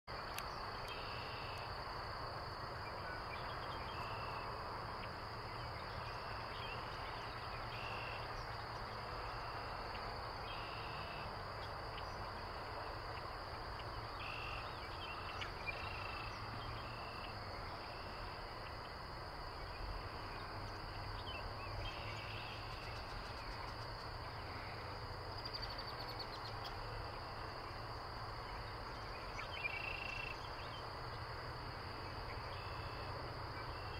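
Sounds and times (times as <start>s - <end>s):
insects droning: 0.1s - 33.9s
low background noise: 0.1s - 33.9s.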